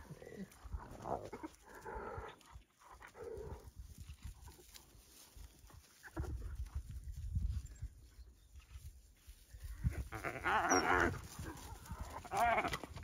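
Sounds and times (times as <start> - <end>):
wild dogs and hyena calls: 9.9 - 12.9.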